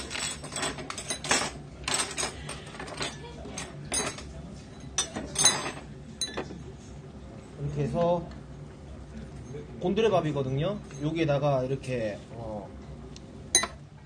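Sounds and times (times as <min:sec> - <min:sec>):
metal tongs clinking on steel bowls: 0:00.0 - 0:06.5, 0:13.6 - 0:13.8.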